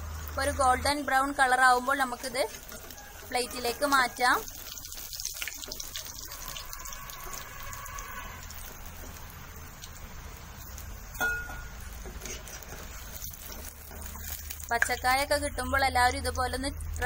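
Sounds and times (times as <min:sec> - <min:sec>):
food sizzling in hot oil: 0:00.0 - 0:17.0
metal spoon knocking pan: 0:11.2 - 0:11.7.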